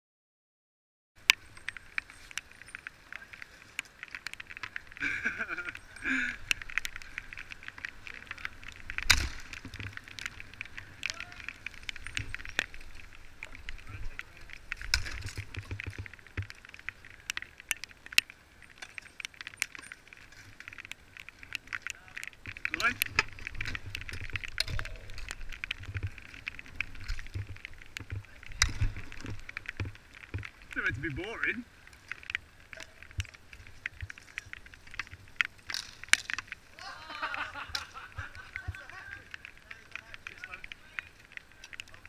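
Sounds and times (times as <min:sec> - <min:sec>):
bicycle and mallet clicks: 0:01.2 - 0:42.0.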